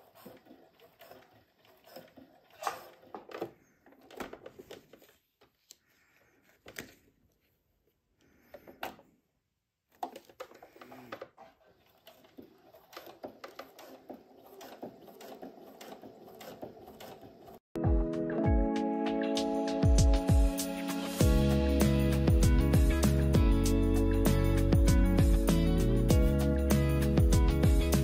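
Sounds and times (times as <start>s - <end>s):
sewing machine stitching: 0.0s - 4.8s, 9.9s - 17.6s.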